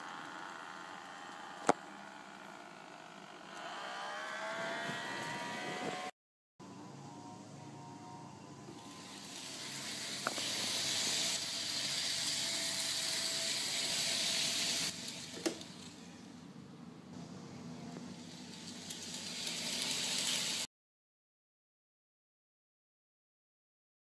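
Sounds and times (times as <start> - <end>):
model train rolling hiss: 8.8 - 15.9, 18.1 - 20.7.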